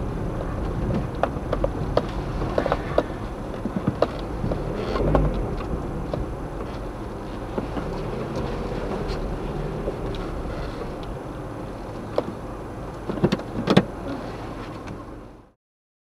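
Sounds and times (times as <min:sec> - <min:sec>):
low rumble of car rolling: 0:00.0 - 0:15.6
sharp knocks and clicks: 0:00.6 - 0:06.8.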